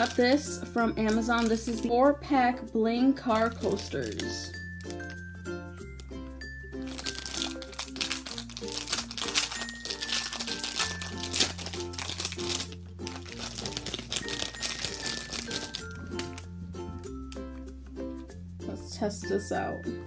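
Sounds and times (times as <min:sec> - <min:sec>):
plastic bag crinkling: 0:00.0 - 0:00.4, 0:01.0 - 0:02.0, 0:03.2 - 0:05.3, 0:06.8 - 0:17.5
light background music: 0:00.0 - 0:20.0.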